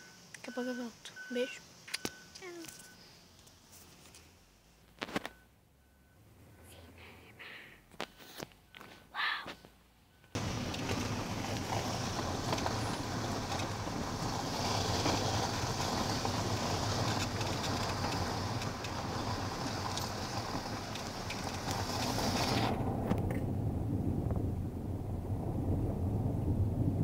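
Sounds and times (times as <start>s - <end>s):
car road and wind noise: 9.8s - 27.0s.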